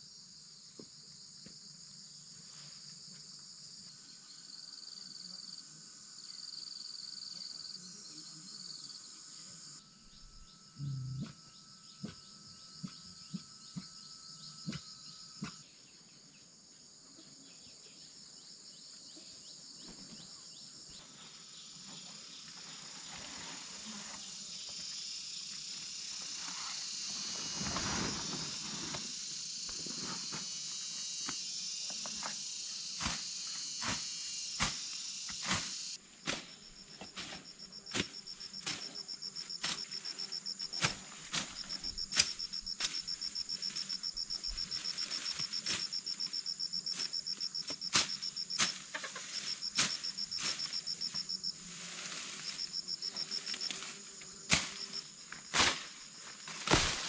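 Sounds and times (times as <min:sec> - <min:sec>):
insects trilling: 0:00.0 - 0:57.0.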